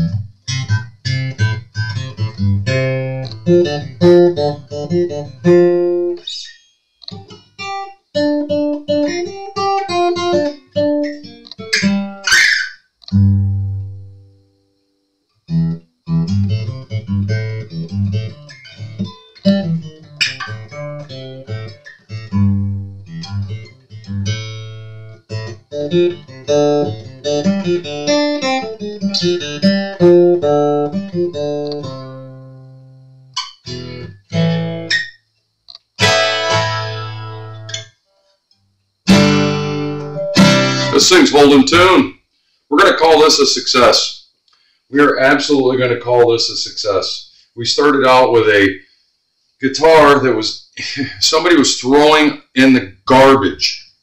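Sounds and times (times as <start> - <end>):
acoustic guitar picking: 0.0 - 14.4, 15.5 - 35.2, 36.0 - 38.3, 39.0 - 42.1.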